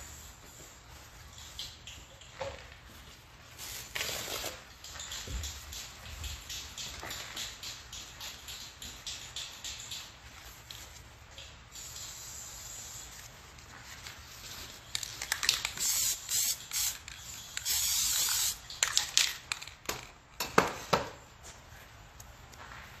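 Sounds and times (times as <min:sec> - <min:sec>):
spray paint can hissing: 0:00.0 - 0:02.3, 0:03.6 - 0:13.5, 0:14.3 - 0:19.6
sharp clicks and knocks: 0:04.8 - 0:11.6.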